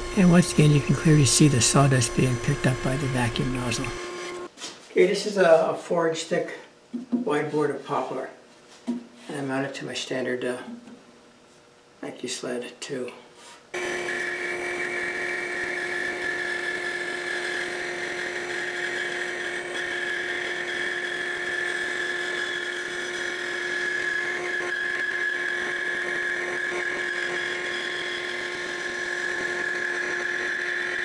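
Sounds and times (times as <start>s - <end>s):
bandsaw cutting wood: 0.0s - 4.5s, 13.8s - 31.0s
dust collection vacuum: 0.0s - 4.5s.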